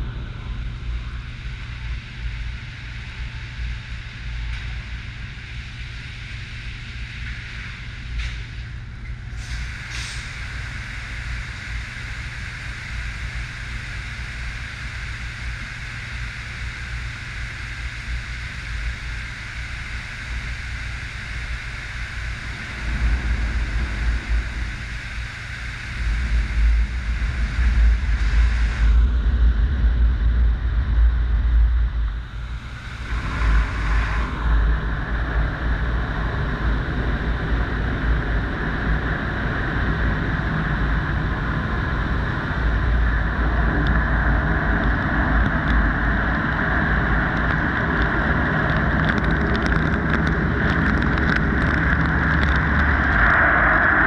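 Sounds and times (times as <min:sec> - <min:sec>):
car wash machinery rumble: 0:00.0 - 0:54.0
dense steady hiss: 0:00.0 - 0:54.0.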